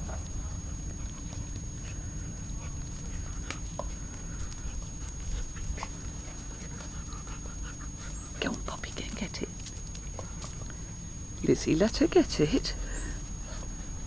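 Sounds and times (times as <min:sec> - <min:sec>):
dogs playing scuffles and clicks: 0:00.0 - 0:10.8
low steady rumble: 0:00.0 - 0:14.0.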